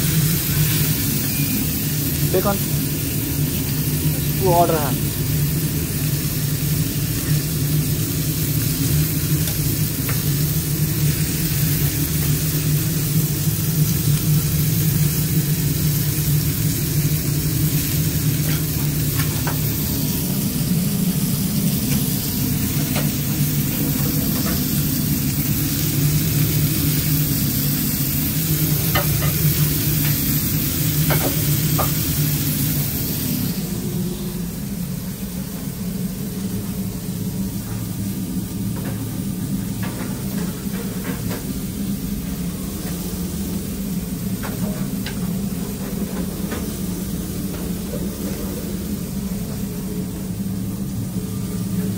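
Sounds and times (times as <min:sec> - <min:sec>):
burger patties sizzling: 0:00.0 - 0:34.5.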